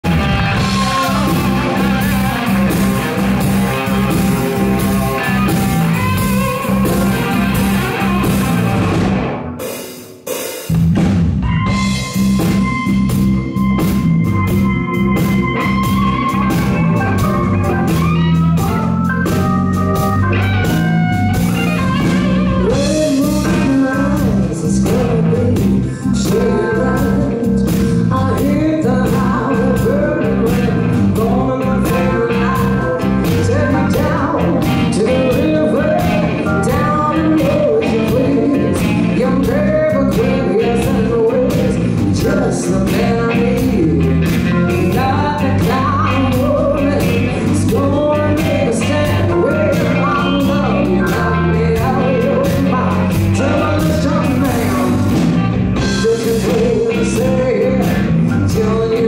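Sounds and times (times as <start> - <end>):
blues-rock band playing: 0.0 - 59.0
woman singing: 0.3 - 8.5, 21.6 - 59.0.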